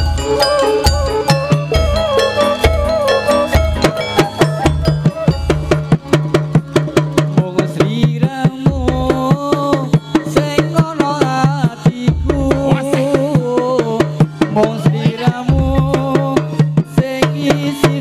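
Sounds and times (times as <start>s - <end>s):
bending melody line: 0.0s - 8.0s
quick drum strokes: 0.0s - 18.0s.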